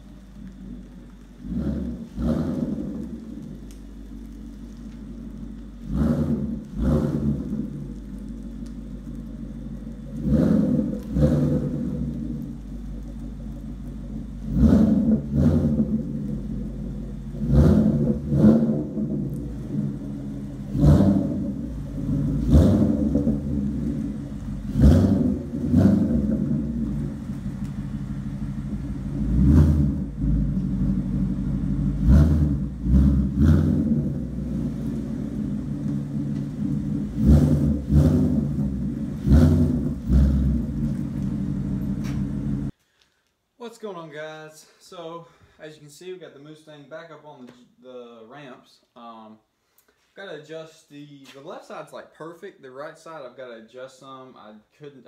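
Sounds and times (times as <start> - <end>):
car engine idling and revving: 0.0 - 42.8.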